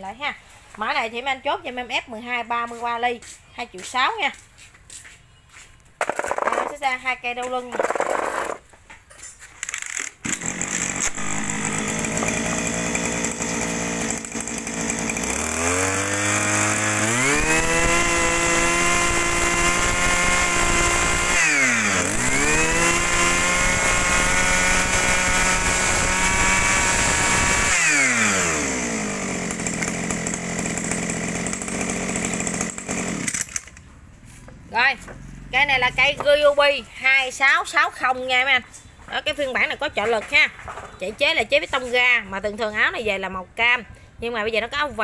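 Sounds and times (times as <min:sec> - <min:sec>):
brush cutter engine revving: 0:07.7 - 0:08.6, 0:09.6 - 0:36.6.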